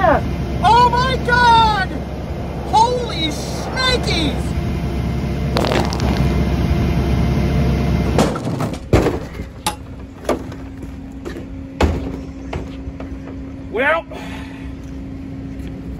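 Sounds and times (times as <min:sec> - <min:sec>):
low rumble: 0:00.0 - 0:08.4.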